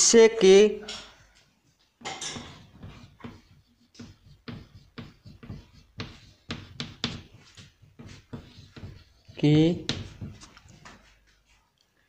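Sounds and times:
chalk scratching on blackboard: 2.4s - 11.1s.

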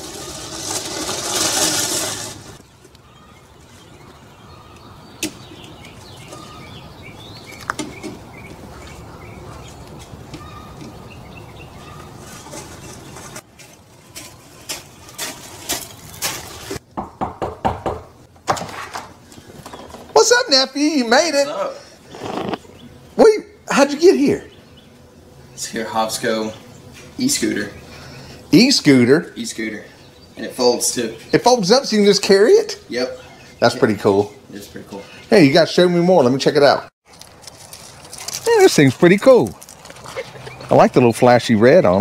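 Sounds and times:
scooter tyres crunching over gravel: 0.0s - 4.8s, 5.4s - 16.8s, 37.0s - 42.0s
birds chirping: 2.3s - 13.4s, 19.1s - 36.9s, 37.6s - 42.0s
knocks and thumps: 15.8s - 20.2s.

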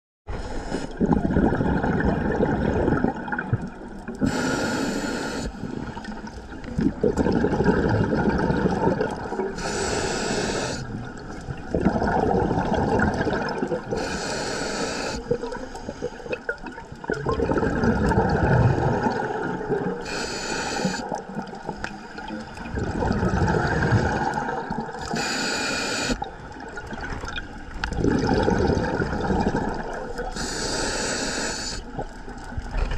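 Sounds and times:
regulator hissing inhale: 0.3s - 1.0s, 4.2s - 5.9s, 9.6s - 10.9s, 13.9s - 16.3s, 20.0s - 21.1s, 25.0s - 26.2s, 30.3s - 32.0s
exhaust bubbles rushing: 1.0s - 3.7s, 6.7s - 9.5s, 11.7s - 13.9s, 17.0s - 20.0s, 22.6s - 25.0s, 26.8s - 30.1s.

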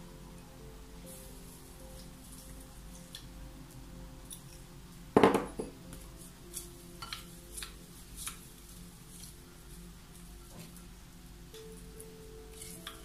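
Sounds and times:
soft background music: 0.0s - 13.0s
ceramic pitcher knocking on table: 5.2s - 5.7s.

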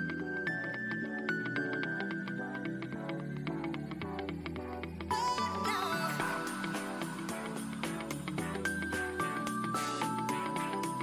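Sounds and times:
background music with quick beat: 3.5s - 11.0s.

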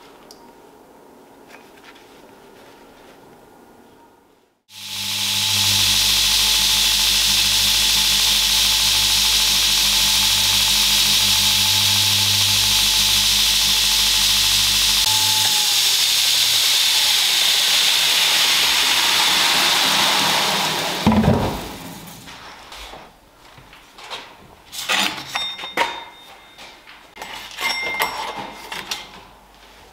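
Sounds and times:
belt grinder grinding hiss: 4.7s - 22.2s
motor hum: 4.7s - 22.2s.

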